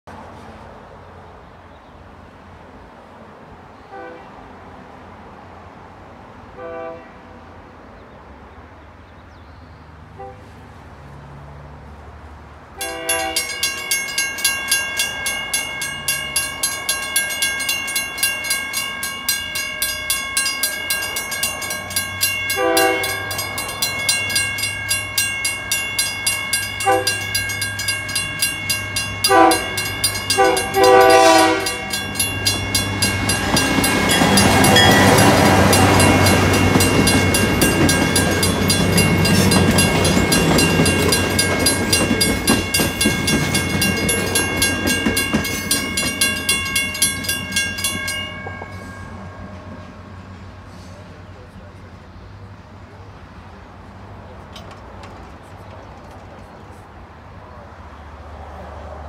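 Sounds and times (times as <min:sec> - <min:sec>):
train horn blasts: 0:03.9 - 0:04.4, 0:06.5 - 0:07.4, 0:10.1 - 0:10.6, 0:12.8 - 0:13.7, 0:22.5 - 0:23.6, 0:26.8 - 0:27.4, 0:29.2 - 0:37.9
train rumbling past: 0:09.9 - 0:59.0
railroad crossing bell ringing: 0:12.8 - 0:51.8.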